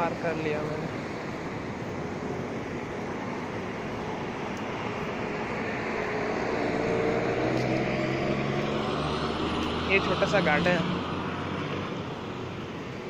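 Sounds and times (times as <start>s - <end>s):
street traffic: 0.0s - 13.0s
vehicle engine approaching: 3.1s - 13.0s.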